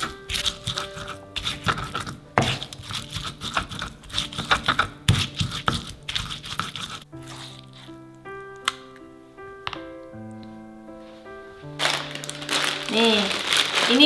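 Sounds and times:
stone pestle grinding in mortar: 0.0 - 7.9.

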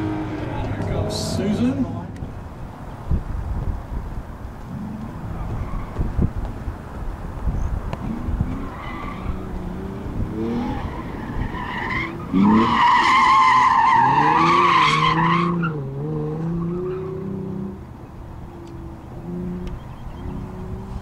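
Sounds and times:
car engine revving: 0.0 - 2.8, 8.0 - 21.0.

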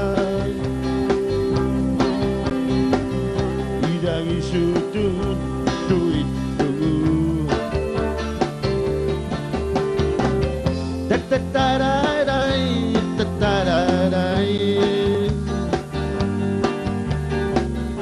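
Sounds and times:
lead electric guitar with bends: 0.0 - 18.0
live rock band playing: 0.0 - 18.0
steady drum beat: 0.0 - 18.0.

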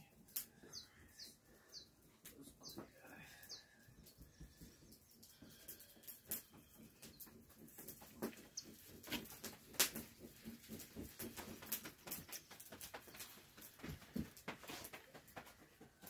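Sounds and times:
fire crackling and popping: 4.8 - 15.7.

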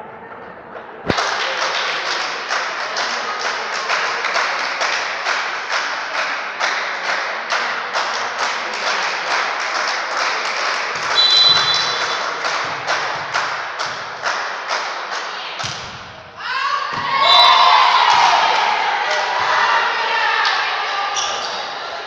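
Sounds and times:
rhythmic clapping echoing: 1.0 - 16.4, 17.0 - 21.0
referee's whistle blast: 11.1 - 12.2.

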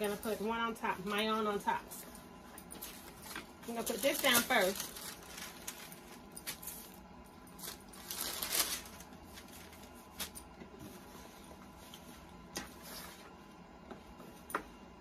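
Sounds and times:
paper rustling: 7.6 - 10.4.

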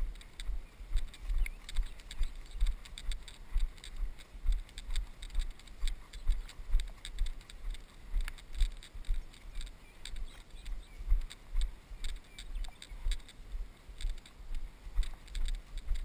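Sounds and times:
footsteps through grass: 0.0 - 16.0
camera mount clicking rattle: 15.0 - 16.0.

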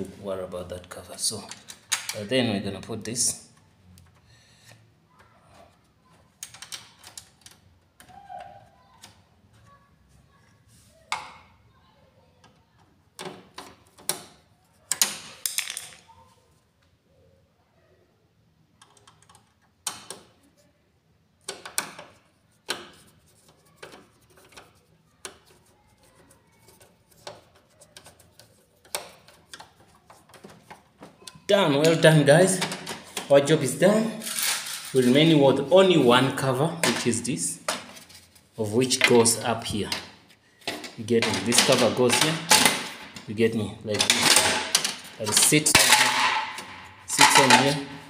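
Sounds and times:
plastic parts clicking and snapping: 1.4 - 2.3, 6.1 - 9.2, 12.4 - 16.0, 18.7 - 20.4, 21.4 - 25.6, 26.7 - 33.4, 39.8 - 43.3, 43.9 - 48.0.

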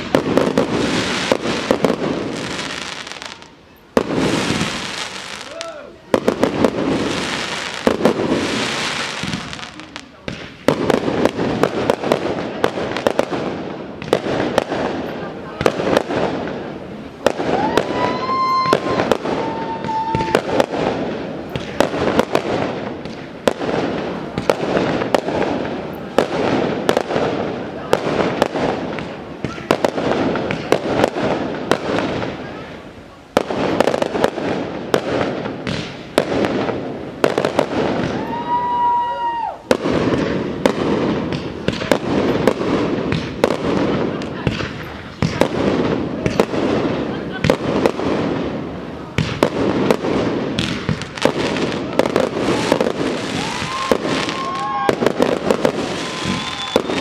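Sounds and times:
fireworks bangs: 0.0 - 57.0
fireworks crackle: 0.0 - 57.0
high firework whistle: 17.3 - 20.7, 37.6 - 39.8, 51.9 - 57.0
firework shells bursting: 39.6 - 57.0.

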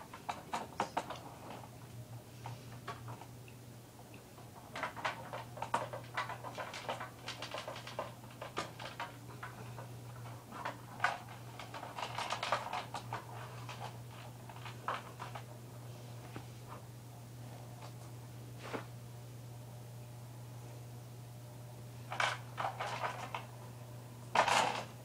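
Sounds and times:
light clicks taps and scratching: 0.0 - 15.5
steady low hum: 0.0 - 25.0.

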